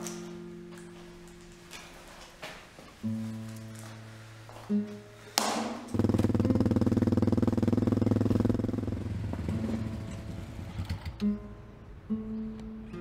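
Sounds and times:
motorcycle engine passing: 5.8s - 11.2s.

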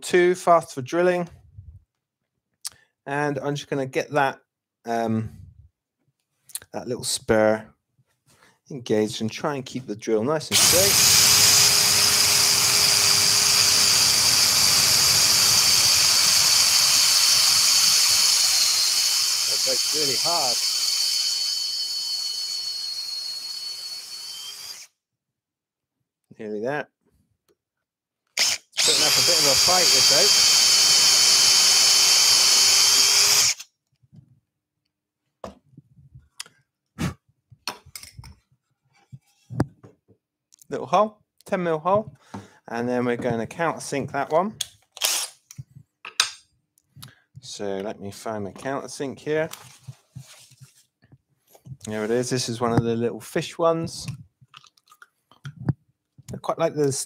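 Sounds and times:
drill whining boring into wood: 10.5s - 24.9s, 28.4s - 33.7s, 45.0s - 45.4s.

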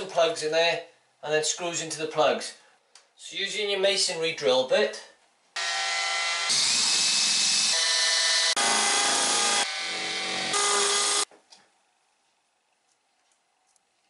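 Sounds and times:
cordless drill drilling into brick: 5.6s - 11.2s.

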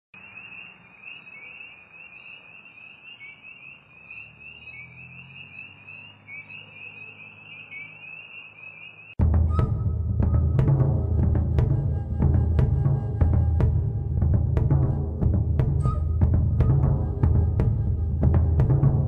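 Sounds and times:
loud music with heavy drums: 9.2s - 19.0s.

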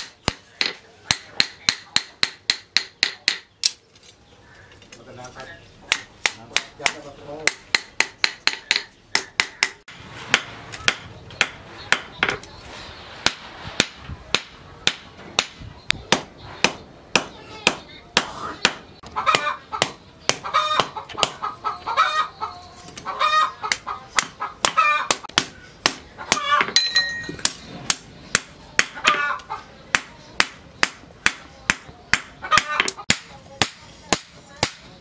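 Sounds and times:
chickens clucking: 17.8s - 30.4s, 31.6s - 33.6s.

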